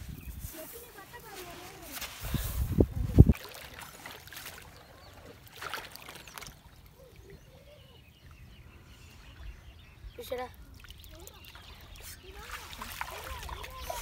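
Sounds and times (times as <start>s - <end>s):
hands splashing in stream water: 3.2s - 6.9s, 10.8s - 14.0s.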